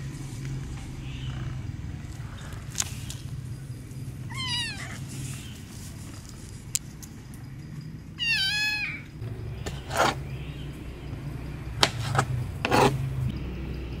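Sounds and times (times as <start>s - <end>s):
kitten meowing: 4.3s - 5.0s, 8.2s - 9.2s.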